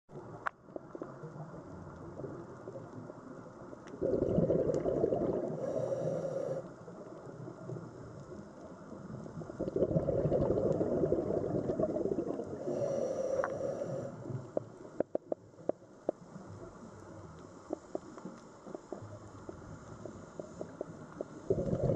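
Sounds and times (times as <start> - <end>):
gurgling exhaled bubbles: 3.9 - 6.1, 9.5 - 13.0, 20.6 - 21.9
regulator hiss: 12.6 - 14.7.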